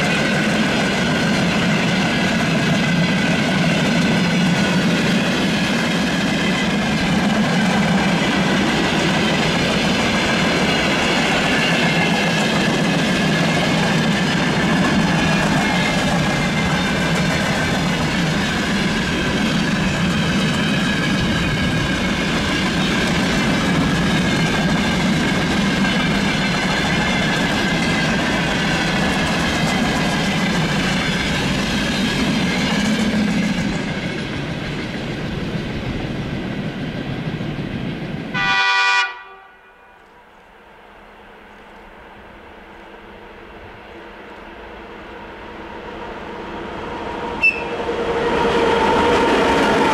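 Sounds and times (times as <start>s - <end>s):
train wheels clattering over rail joints: 0.0s - 36.0s
diesel locomotive horn blast: 38.3s - 40.0s, 47.4s - 47.8s.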